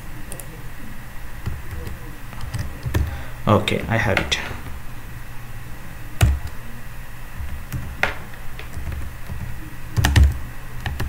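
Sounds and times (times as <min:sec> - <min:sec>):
low steady hum: 0:00.0 - 0:11.0
keyboard keystrokes: 0:07.4 - 0:11.0.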